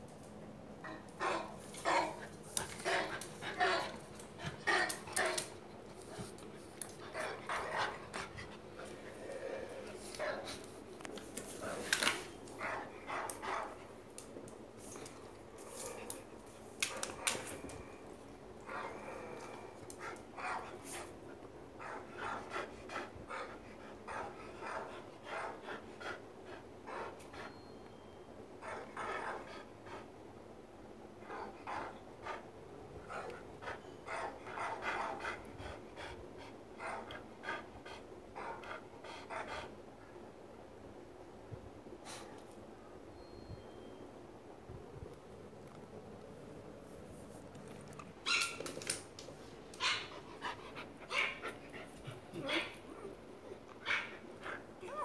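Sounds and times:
dog huffing and panting: 50.0s - 53.1s.

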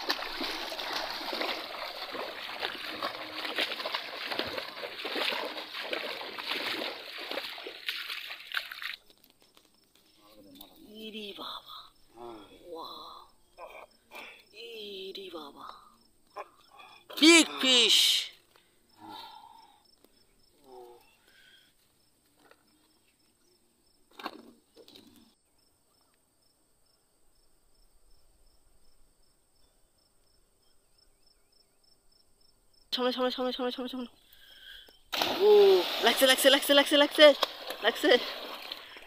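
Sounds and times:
men calling out: 16.3s - 18.4s, 35.2s - 37.3s.

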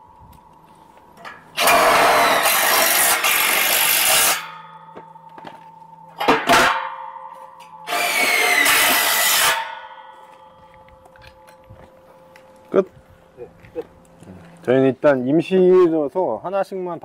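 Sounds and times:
sharp metal knocks: 1.2s - 11.9s.

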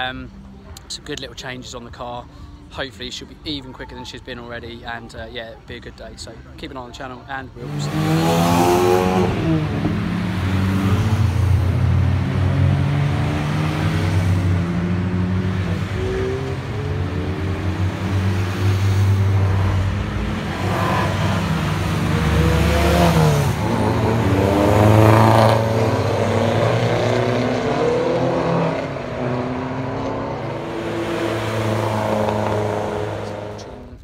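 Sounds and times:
race cars driving past: 7.6s - 34.0s.

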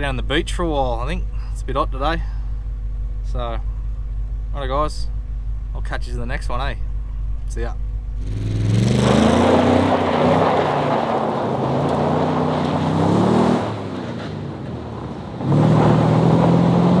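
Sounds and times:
pickup engine revving: 5.1s - 17.0s
tyres spinning spraying gravel: 8.9s - 16.6s.

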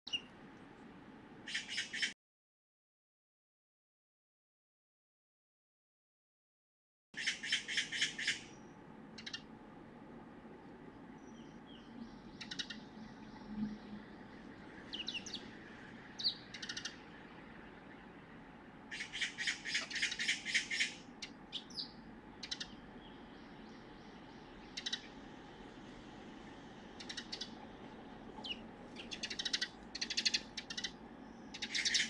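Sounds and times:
magpie chattering alarm call: 1.5s - 2.1s, 7.2s - 8.6s, 9.2s - 9.5s, 12.4s - 12.9s, 16.2s - 17.0s, 18.9s - 22.8s, 24.7s - 25.2s, 27.0s - 27.6s, 28.4s - 32.0s.

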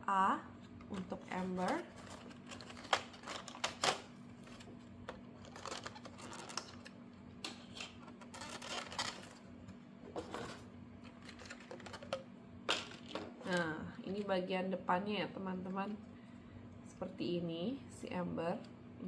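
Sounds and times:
packaging being handled: 0.8s - 7.0s, 7.6s - 9.4s, 10.3s - 12.2s.

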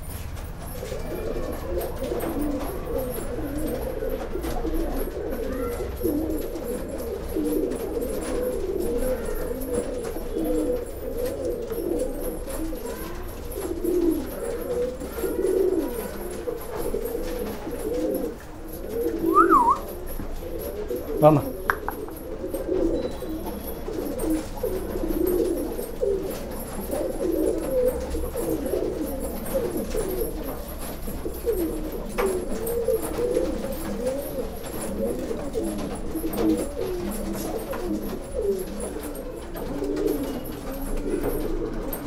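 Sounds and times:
pigeons cooing: 0.0s - 42.0s
high-pitched squeak: 19.2s - 20.0s.

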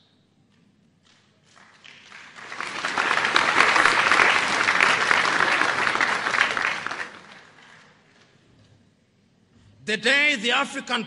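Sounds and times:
audience applauding: 1.4s - 8.3s.

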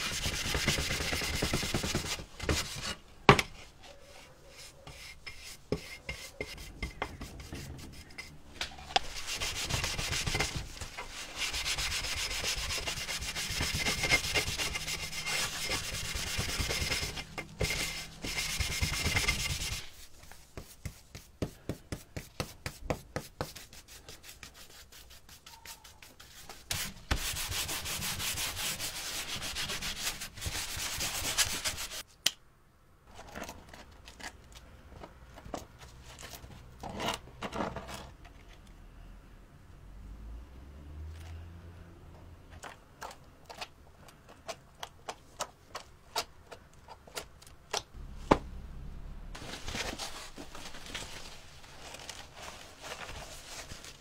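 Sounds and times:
sanding scraping: 0.0s - 3.0s, 4.0s - 8.4s, 9.0s - 32.0s.

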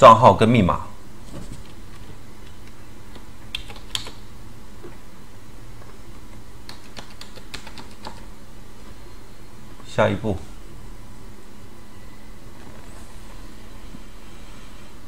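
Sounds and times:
low background hum: 0.0s - 15.0s
computer keyboard typing: 2.4s - 4.2s, 6.2s - 8.3s.

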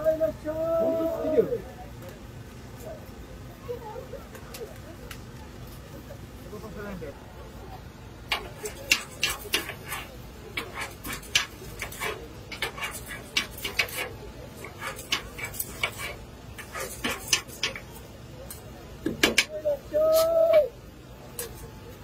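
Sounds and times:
metal spatulas scraping griddle: 8.3s - 19.5s.

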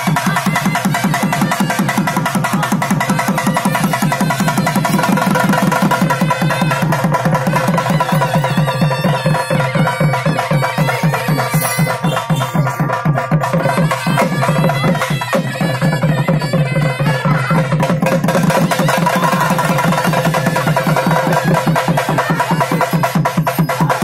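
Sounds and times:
barrel drums beating: 0.0s - 24.0s.

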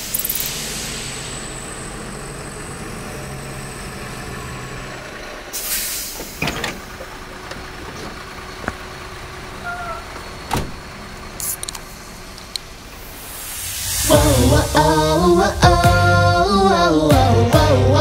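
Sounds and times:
truck idling: 0.0s - 18.0s
air brake hiss: 0.3s - 2.4s, 5.5s - 6.6s, 13.0s - 16.9s.

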